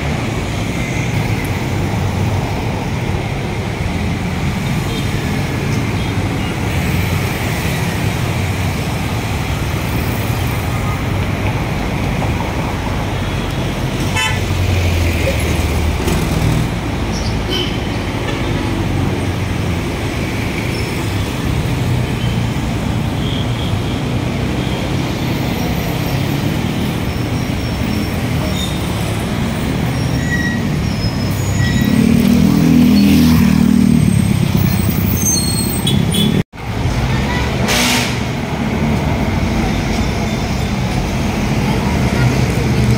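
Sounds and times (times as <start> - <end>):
traffic passing: 0.0 - 42.9.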